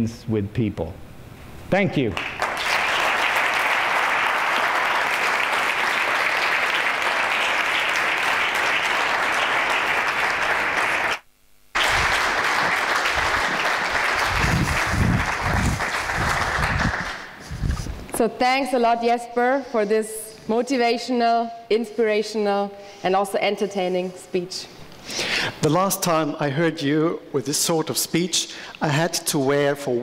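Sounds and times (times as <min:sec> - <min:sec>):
audience applauding: 0:02.1 - 0:17.4.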